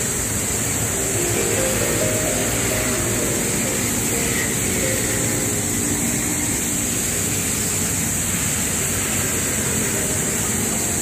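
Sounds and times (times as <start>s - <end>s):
high traffic hiss: 0.0s - 11.0s.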